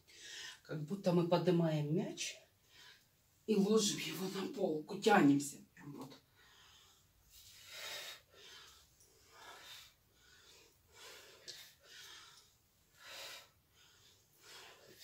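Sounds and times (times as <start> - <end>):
woman breathing: 0.0 - 0.7, 2.6 - 3.2, 6.2 - 15.0.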